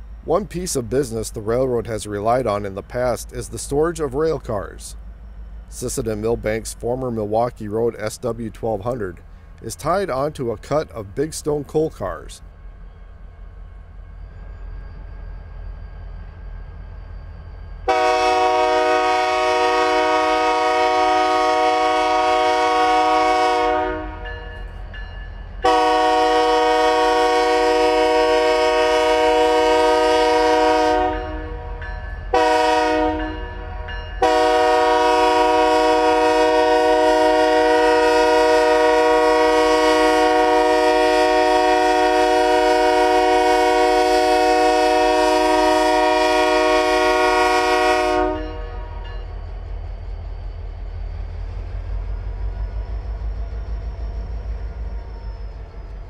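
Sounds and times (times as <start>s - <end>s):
locomotive air horn blasts: 17.9s - 24.3s, 25.6s - 33.4s, 34.2s - 49.0s.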